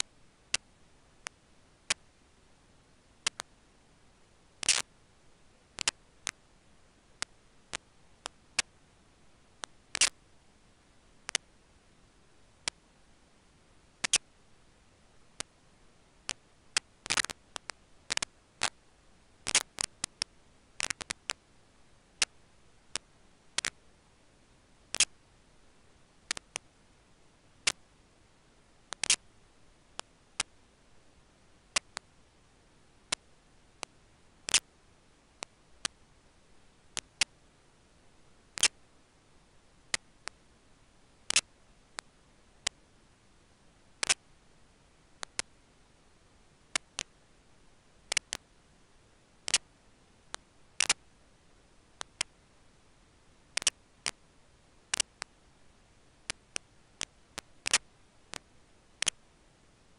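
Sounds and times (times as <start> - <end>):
faint steady hiss: 0.0 - 59.9
sharp clicks and ticks: 3.2 - 3.5, 14.0 - 14.2, 19.5 - 21.4, 24.9 - 25.1, 28.9 - 29.2, 44.0 - 44.2, 48.1 - 48.4, 50.3 - 51.0, 53.6 - 53.8, 54.9 - 55.3.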